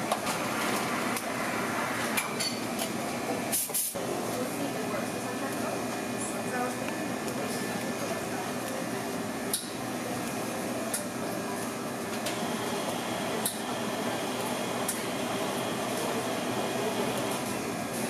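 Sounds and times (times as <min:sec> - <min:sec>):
machine whir: 0:12.2 - 0:18.0.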